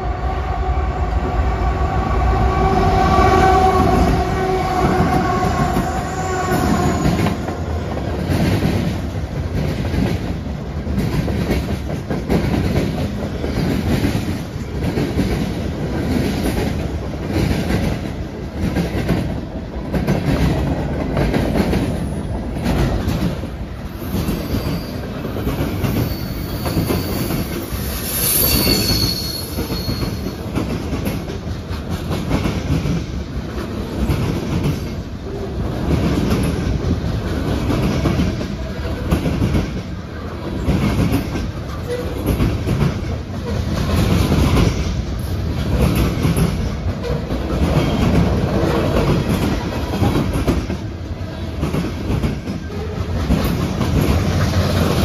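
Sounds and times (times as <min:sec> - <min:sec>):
train horn: 0:00.0 - 0:07.8
train wheels clacking over rail joints: 0:04.1 - 0:55.0
high thin wheel squeal: 0:24.0 - 0:30.4.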